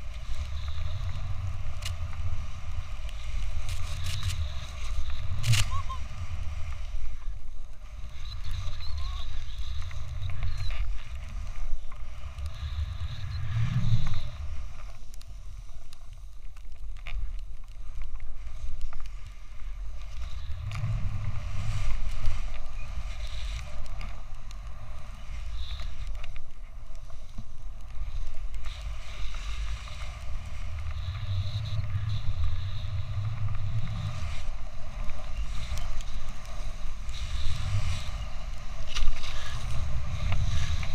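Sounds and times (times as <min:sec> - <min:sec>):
wind buffeting microphone: 0:00.0 - 0:14.8, 0:19.7 - 0:26.8, 0:27.6 - 0:40.9
snowboard hissing through snow: 0:11.3 - 0:15.8, 0:28.0 - 0:40.9
low rushing rumble: 0:12.1 - 0:14.8, 0:20.4 - 0:22.9, 0:29.7 - 0:35.6.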